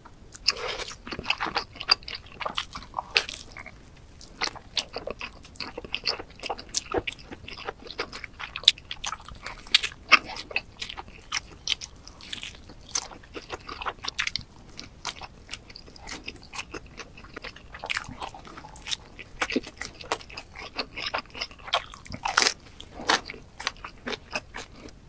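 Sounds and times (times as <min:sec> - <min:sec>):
person chewing crunchy pizza: 0:00.3 - 0:25.0.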